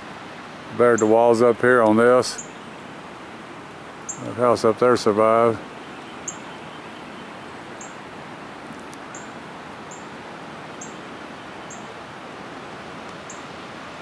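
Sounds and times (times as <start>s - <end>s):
outdoor hiss: 0.0s - 14.0s
small bird chirping: 5.8s - 8.0s.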